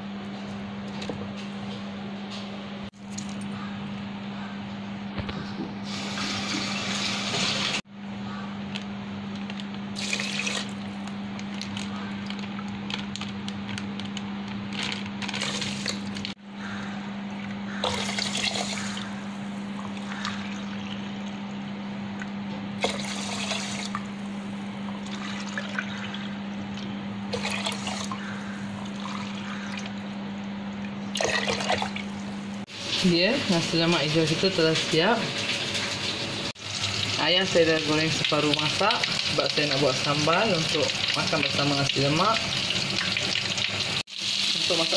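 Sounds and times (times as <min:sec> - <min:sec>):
steady low hum: 0:07.8 - 0:32.7.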